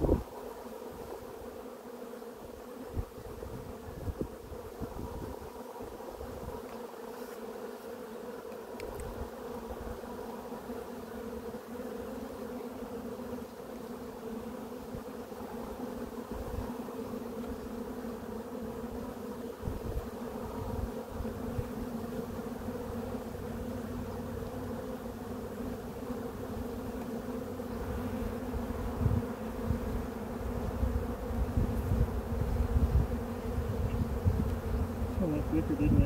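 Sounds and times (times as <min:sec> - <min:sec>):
honeybees buzzing: 0:00.0 - 0:36.0.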